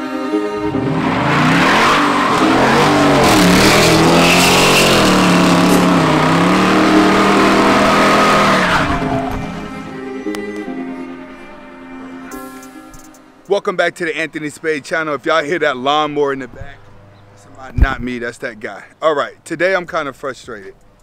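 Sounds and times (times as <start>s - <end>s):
car engine revving hard: 0.6s - 9.8s
tyre squeal: 1.5s - 9.7s.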